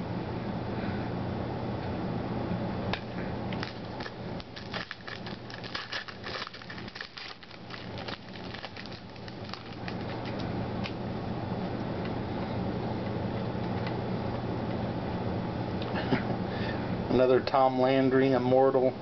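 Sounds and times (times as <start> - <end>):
steady low hum: 0.0 - 19.0
foil wrapper crinkling and tearing: 3.6 - 11.0.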